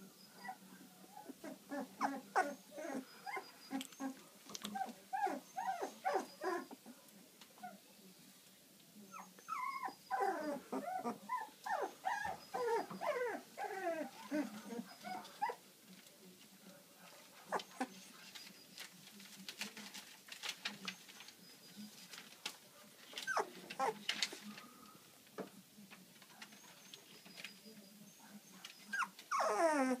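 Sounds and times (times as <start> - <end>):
puppies whimpering and squeaking: 0.2 - 6.8, 9.1 - 15.6, 23.1 - 24.0, 26.4 - 30.0.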